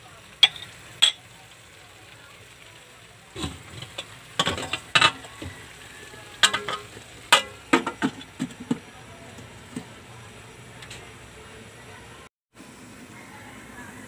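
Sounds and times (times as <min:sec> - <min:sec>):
food sizzling: 0:00.0 - 0:14.0
utensil scraping a wok: 0:03.3 - 0:11.2.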